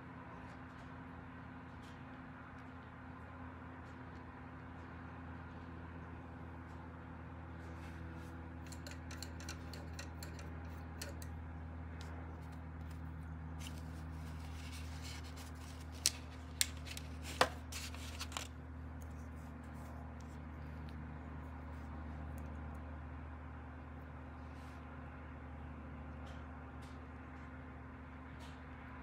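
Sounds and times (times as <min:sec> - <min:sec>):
steady low hum: 0:00.0 - 0:29.0
tools clicking and tapping: 0:08.6 - 0:11.4.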